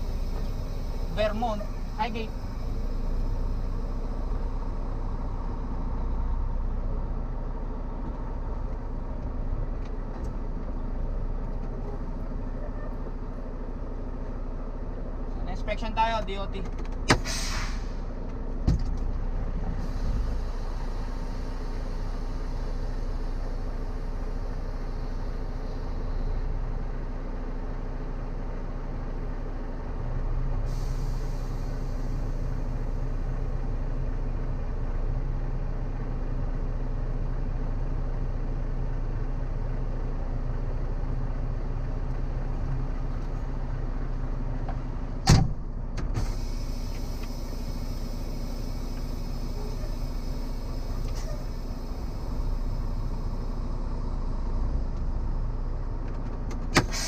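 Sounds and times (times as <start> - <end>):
steady hum: 0.0 - 6.8
diesel truck engine idling: 0.0 - 57.0
air hiss: 17.2 - 18.0, 30.6 - 32.9.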